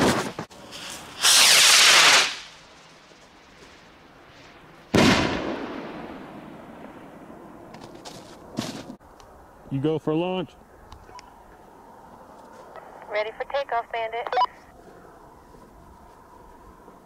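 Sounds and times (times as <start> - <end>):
rocket firework whoosh: 0.0 - 7.6
firework bang echoing: 4.9 - 7.4.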